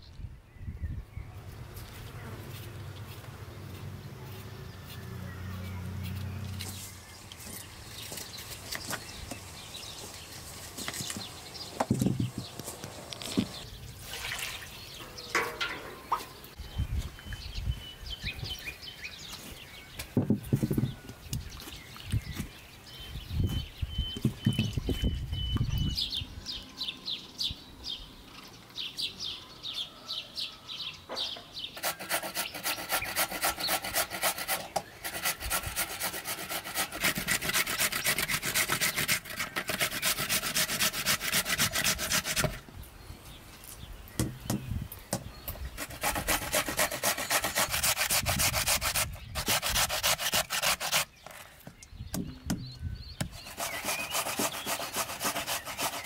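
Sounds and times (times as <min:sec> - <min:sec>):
bird chirping: 0:00.0 - 0:56.0
potatoes rasping on grater: 0:45.8 - 0:51.1, 0:53.4 - 0:56.0.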